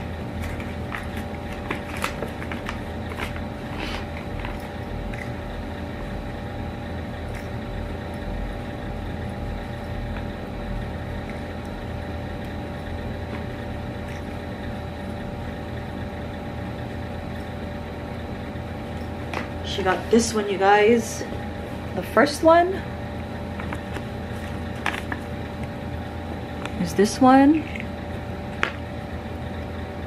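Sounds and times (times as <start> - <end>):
machine hum: 0.0 - 30.0.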